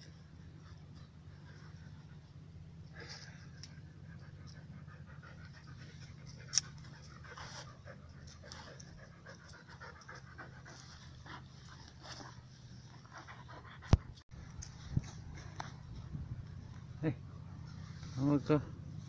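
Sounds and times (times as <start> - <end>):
dog panting: 3.0 - 14.2.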